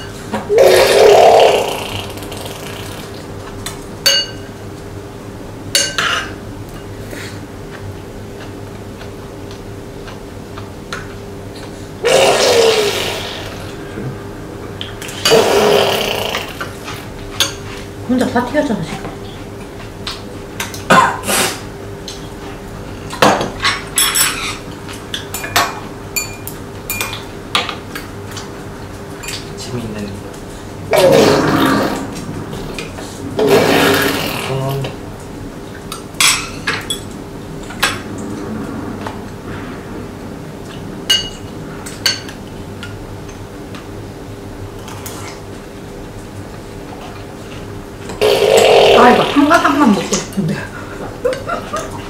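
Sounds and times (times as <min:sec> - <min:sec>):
cutlery clinking on ceramic bowls: 0:23.2 - 0:24.6, 0:25.2 - 0:27.3.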